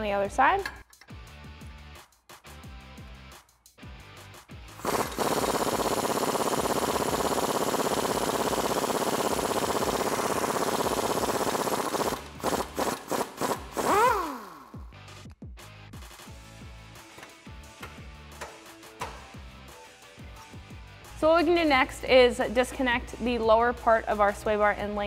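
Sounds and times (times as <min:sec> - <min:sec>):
impact wrench hammering: 0:04.8 - 0:14.7, 0:17.2 - 0:19.3
impact wrench spinning: 0:04.8 - 0:14.8.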